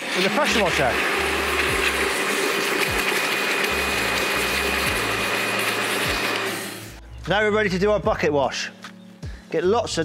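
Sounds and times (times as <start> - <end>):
pressure washer machine whine: 0.0 - 7.0
water spraying into a bucket: 0.0 - 7.0.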